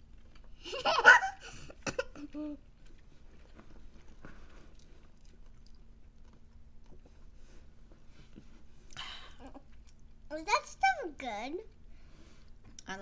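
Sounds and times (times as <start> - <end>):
mouth smacks and clicks eating: 4.1 - 7.1.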